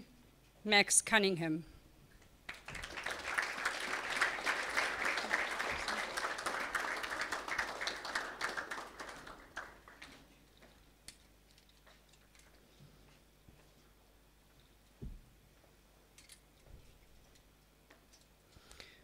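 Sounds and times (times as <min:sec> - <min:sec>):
audience applauding: 0:02.5 - 0:10.3.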